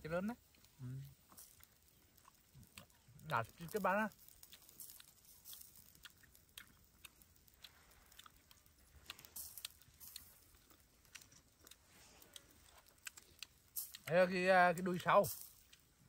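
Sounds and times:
people chewing: 0:00.5 - 0:14.1, 0:14.7 - 0:16.0.

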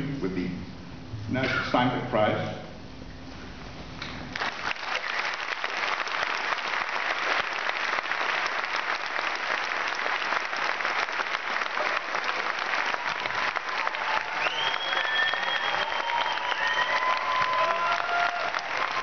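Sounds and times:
audience applause: 0:04.3 - 0:19.0.

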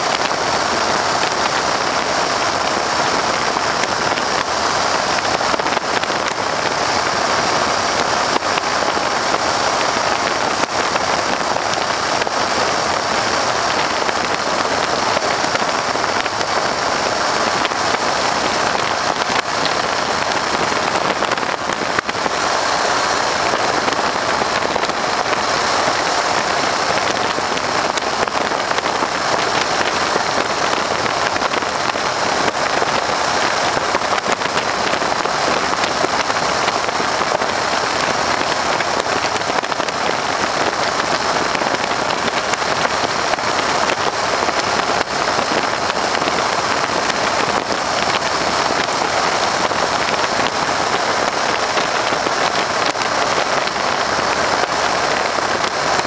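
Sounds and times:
wind blasting microphone: 0:00.0 - 0:56.0.

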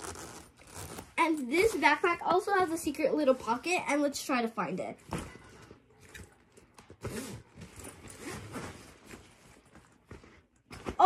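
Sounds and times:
backpack rustling and bumping: 0:06.9 - 0:11.0.

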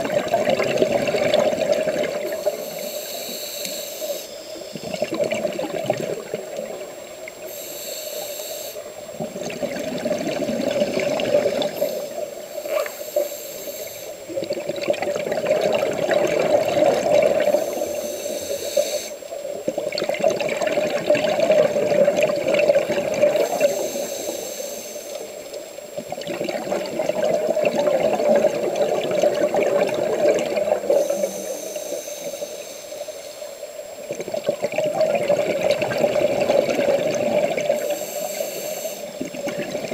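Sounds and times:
exhaled bubbles rushing: 0:00.0 - 0:02.6, 0:04.7 - 0:07.4, 0:09.0 - 0:13.0, 0:14.2 - 0:17.8, 0:19.6 - 0:23.6, 0:26.0 - 0:31.3, 0:34.0 - 0:38.0, 0:39.1 - 0:39.9
steady hum: 0:00.0 - 0:39.9
regulator inhale hiss: 0:02.2 - 0:05.0, 0:07.4 - 0:09.1, 0:11.5 - 0:14.4, 0:17.2 - 0:19.4, 0:23.3 - 0:25.8, 0:30.7 - 0:33.7, 0:37.6 - 0:39.4.

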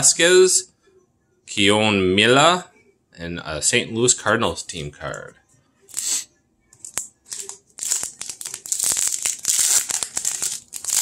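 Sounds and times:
wrapper crinkling and tearing: 0:06.8 - 0:11.0.

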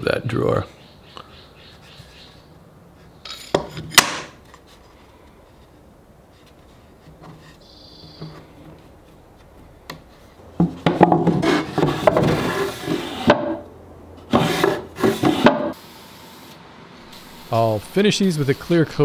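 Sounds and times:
wooden drawer sliding: 0:10.7 - 0:13.6, 0:14.3 - 0:15.8.

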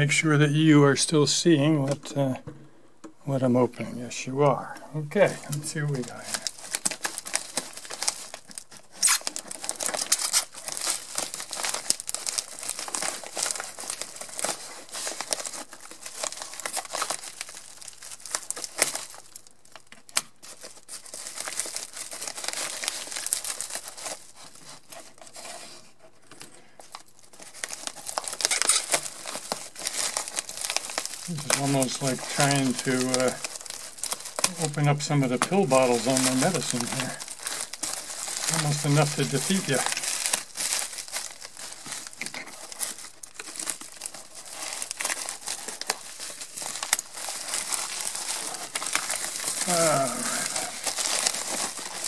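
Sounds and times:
packing wrap crinkling and tearing: 0:04.6 - 0:52.0
sharp snaps of wrap: 0:08.3 - 0:11.0.

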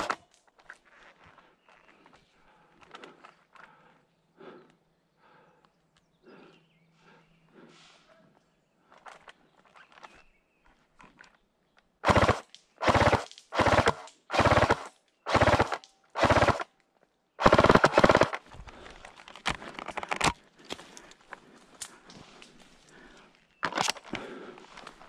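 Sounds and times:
faint clicks: 0:00.1 - 0:04.0
airsoft rifle firing bursts: 0:12.0 - 0:16.7, 0:17.4 - 0:18.4.

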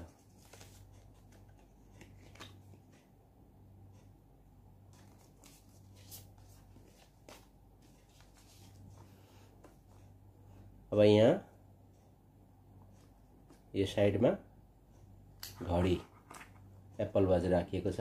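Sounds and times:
cardboard and paper rustling: 0:00.0 - 0:02.8, 0:04.9 - 0:10.1.

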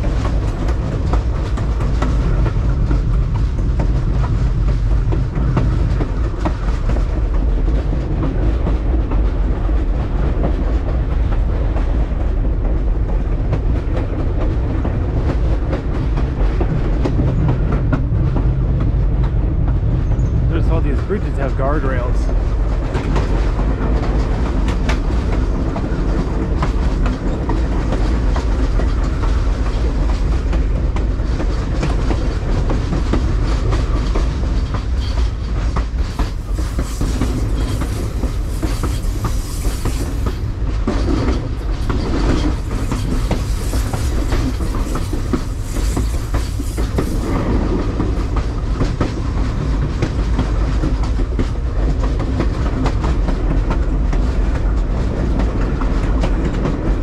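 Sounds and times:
train rumbling along track: 0:00.0 - 0:57.0
wheels clicking over rail joints: 0:22.2 - 0:57.0.

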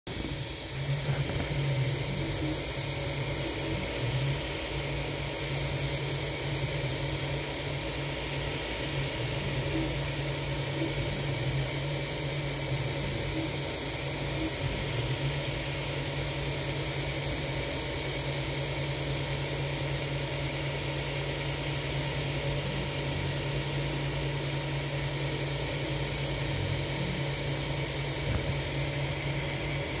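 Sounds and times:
low motor hum: 0:00.1 - 0:07.2
fan whirring with high whine: 0:00.1 - 0:30.0.

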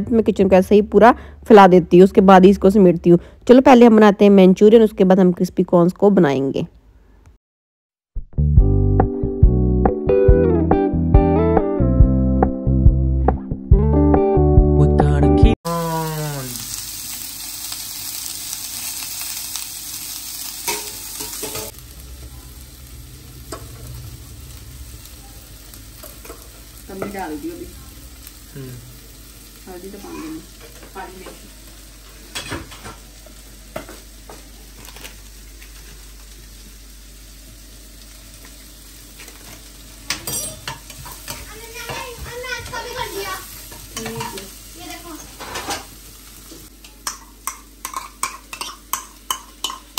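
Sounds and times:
food sizzling in oil: 0:15.7 - 0:49.9.

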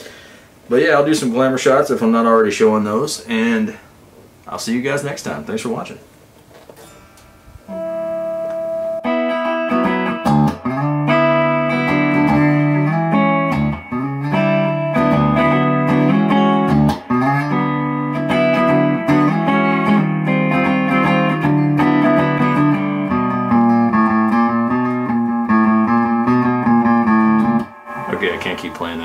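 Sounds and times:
electric guitar chords and notes: 0:06.8 - 0:29.0.

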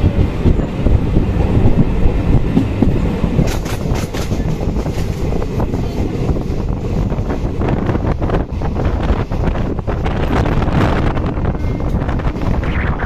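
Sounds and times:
train wheels rumbling on track: 0:00.0 - 0:12.7
wheels clicking over rail joints: 0:02.5 - 0:06.5.

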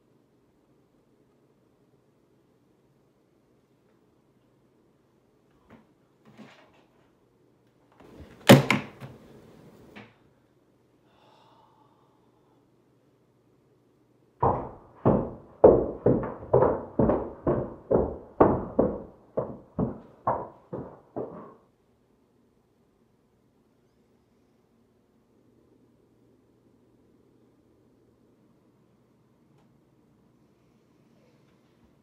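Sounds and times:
rapid knocking on a door: 0:14.4 - 0:21.6.

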